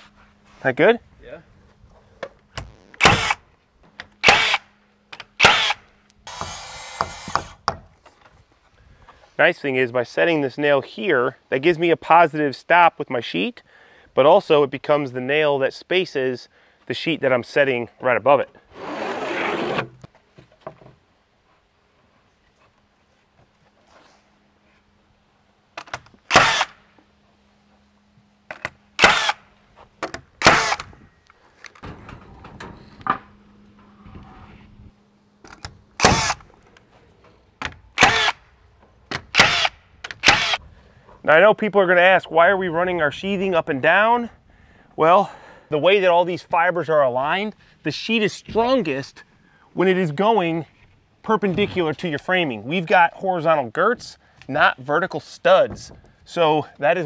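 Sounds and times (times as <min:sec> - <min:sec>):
nail gun firing: 0:02.6 - 0:03.4, 0:04.2 - 0:04.7, 0:05.4 - 0:07.6, 0:25.9 - 0:26.8, 0:29.0 - 0:29.4, 0:30.4 - 0:30.9, 0:36.0 - 0:36.4, 0:38.0 - 0:38.4, 0:39.1 - 0:40.6.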